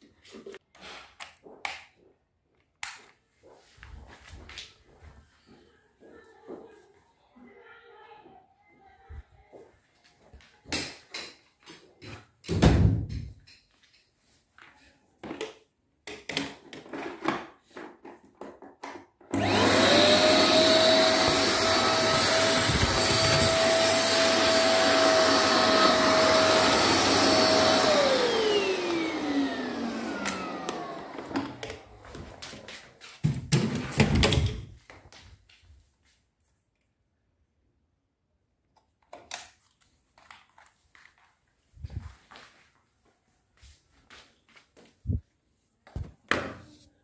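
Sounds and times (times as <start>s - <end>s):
knocks and handling sounds: 10.5s - 19.5s, 38.7s - 42.8s
vacuum cleaner motor whining: 19.3s - 32.4s.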